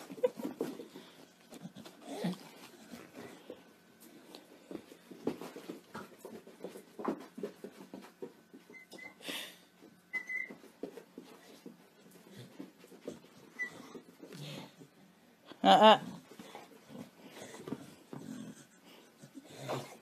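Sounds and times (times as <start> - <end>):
soft taps and shuffling: 0.0 - 9.0, 9.8 - 15.0.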